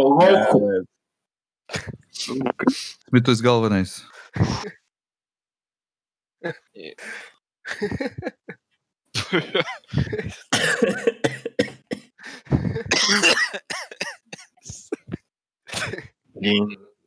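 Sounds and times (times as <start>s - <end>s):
person coughing: 9.6s - 16.1s.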